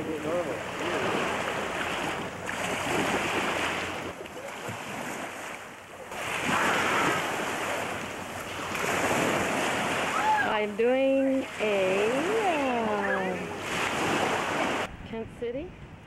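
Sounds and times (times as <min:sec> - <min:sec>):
waves lapping on rocky shore: 0:00.0 - 0:14.9
wind buffeting microphone: 0:06.2 - 0:16.0.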